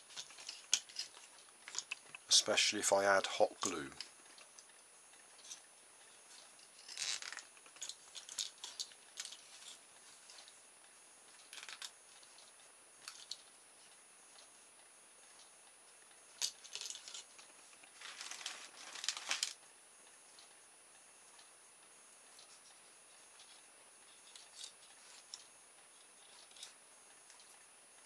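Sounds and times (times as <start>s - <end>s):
cable tie clicking and rustling: 0.0s - 2.4s, 6.3s - 10.6s, 16.4s - 19.6s, 23.3s - 27.6s.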